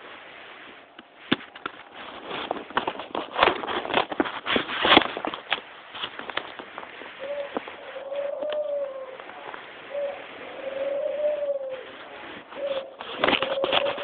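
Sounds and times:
pigeon cooing: 7.2 - 14.0
faint clicks: 7.5 - 9.6.

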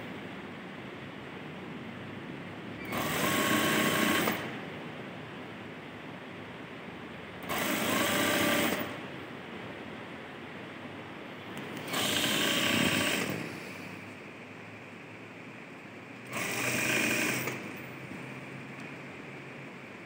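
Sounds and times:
sewing machine stitching: 2.8 - 4.5, 7.4 - 9.0, 11.8 - 13.6, 16.3 - 17.8.

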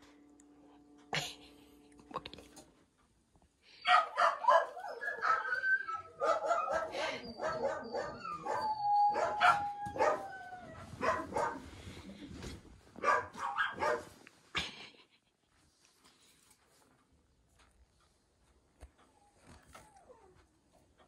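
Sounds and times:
puppy whining and yipping: 3.9 - 11.5, 19.0 - 20.4.

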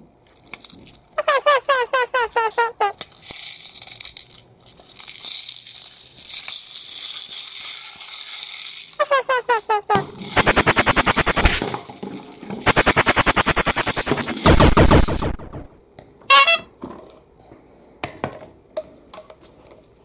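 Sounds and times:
plastic toy rattling: 0.3 - 15.7
fast even clicking: 10.3 - 11.7, 12.6 - 15.7.

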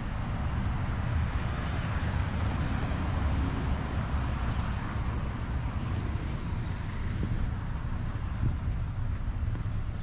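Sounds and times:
street traffic: 0.0 - 10.0
wind noise on microphone: 0.0 - 10.0.

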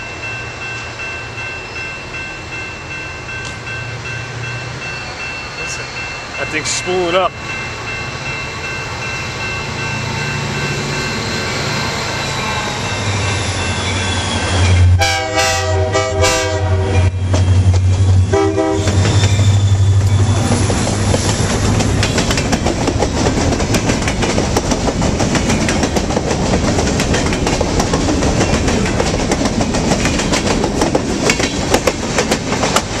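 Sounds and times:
diesel locomotive engine humming: 0.0 - 33.0
locomotive horn blasts: 15.0 - 17.2, 18.3 - 19.0
train wheels clacking over rail joints: 17.2 - 33.0.

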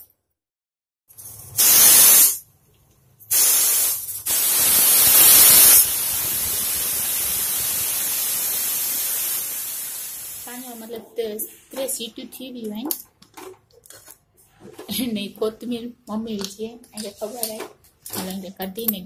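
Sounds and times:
steam hissing: 1.6 - 2.4, 3.3 - 10.8
pressure cooker whistling: 4.3 - 10.4.

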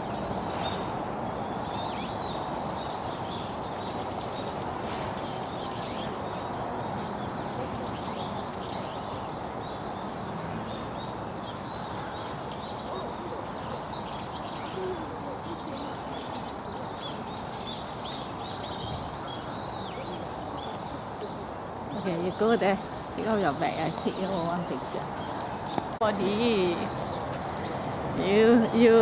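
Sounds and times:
low background noise: 0.0 - 29.0
small birds chirping: 0.0 - 29.0.

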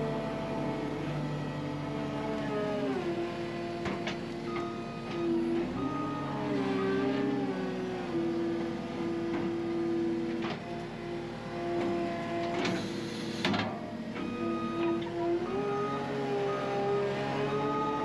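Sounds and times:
skid steer engine running: 0.0 - 18.0.

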